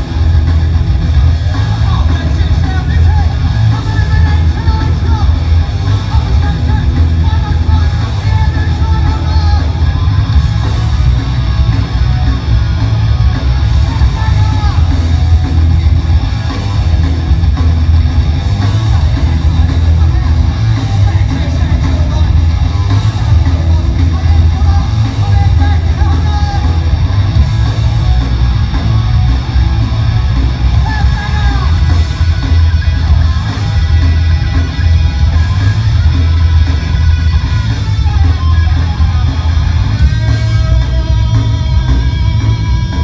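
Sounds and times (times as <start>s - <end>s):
live punk band playing: 0.0s - 43.0s.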